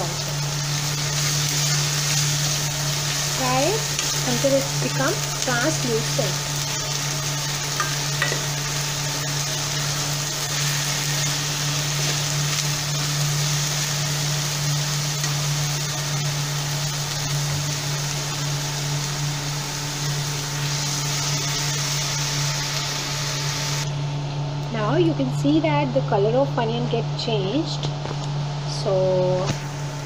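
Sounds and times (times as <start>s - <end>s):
onion sizzling in oil: 0.0s - 24.0s
low hum: 0.0s - 28.0s.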